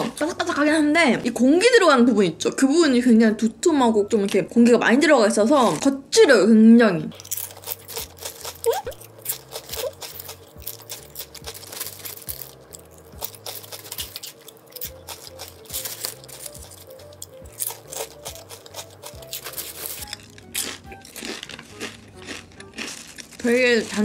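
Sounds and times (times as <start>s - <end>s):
light background music: 0.0s - 24.0s
chips crunching: 7.1s - 24.0s.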